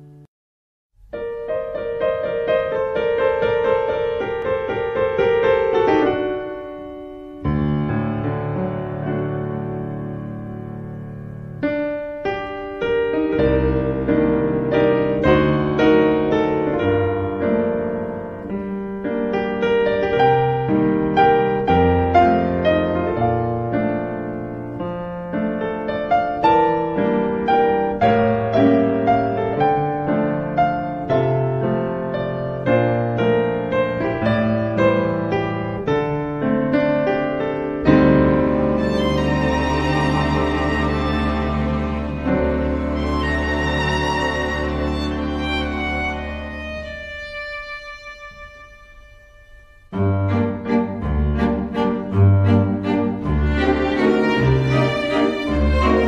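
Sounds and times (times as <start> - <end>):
piano music: 1.0 - 56.0.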